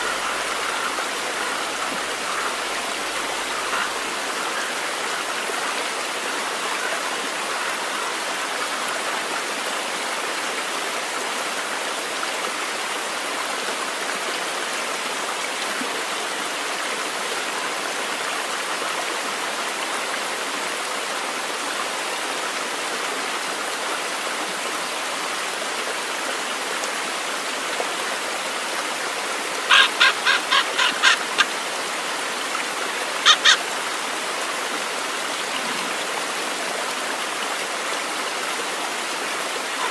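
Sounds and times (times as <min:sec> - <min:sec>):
bird harsh calls: 0:00.0 - 0:04.8, 0:29.7 - 0:31.5, 0:33.2 - 0:33.7
stream rushing over rocks: 0:00.0 - 0:39.9.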